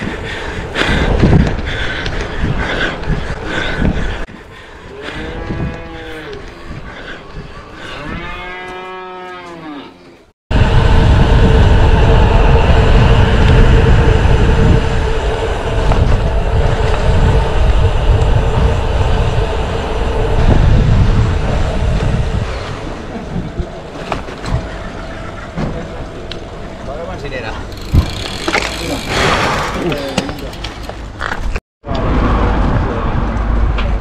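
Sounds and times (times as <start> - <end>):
wind rumble on microphone: 0.0 - 8.5, 10.5 - 34.0
cow mooing: 7.9 - 10.0
steady hum: 10.5 - 25.4.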